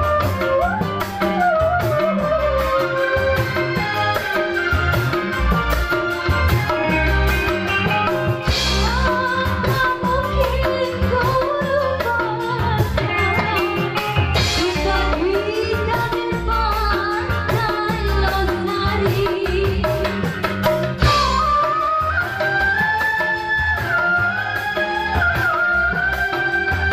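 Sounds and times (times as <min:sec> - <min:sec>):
electric guitar: 0:00.0 - 0:26.9
keyboard: 0:00.0 - 0:26.9
drum beat: 0:03.4 - 0:11.9, 0:12.6 - 0:21.7
woman singing: 0:06.9 - 0:26.9.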